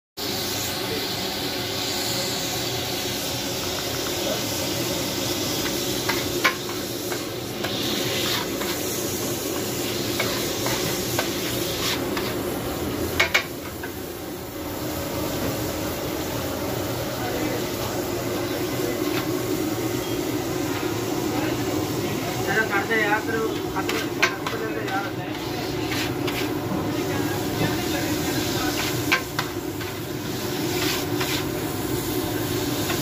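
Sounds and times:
steam hissing: 0.2 - 13.2, 14.5 - 33.0
chicken sizzling on griddle: 0.2 - 33.0
metal spatula scraping griddle: 5.5 - 12.4, 23.8 - 31.7.

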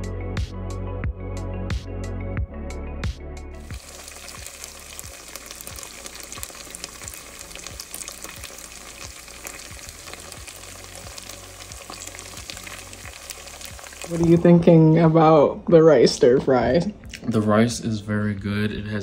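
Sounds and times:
background music with a beat: 0.0 - 6.0, 7.0 - 13.9
rice sizzling in hot oil: 3.6 - 14.6.

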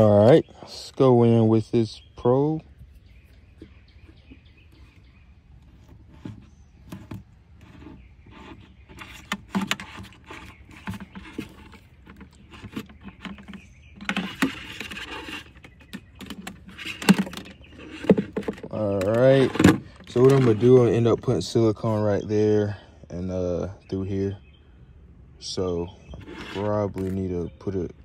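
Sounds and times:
rustling scrape: 2.9 - 22.0, 26.1 - 27.3.

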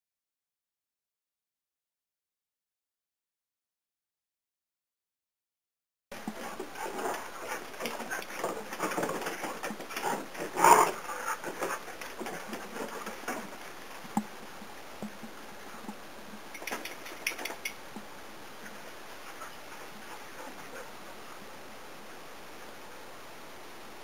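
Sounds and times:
dog paws clicking on wooden deck: 6.2 - 18.1.

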